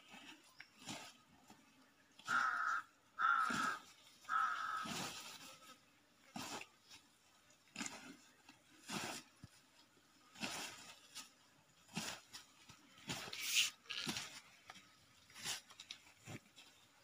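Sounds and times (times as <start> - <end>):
crow cawing: 2.3 - 5.1.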